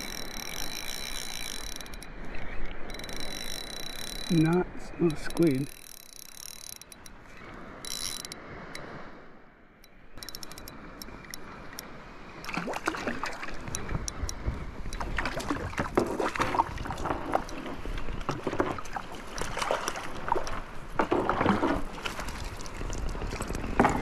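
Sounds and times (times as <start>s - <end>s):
water splashing around boat: 0.0s - 9.3s, 10.2s - 24.0s
small knocks on boat: 18.2s - 19.6s, 20.3s - 22.2s.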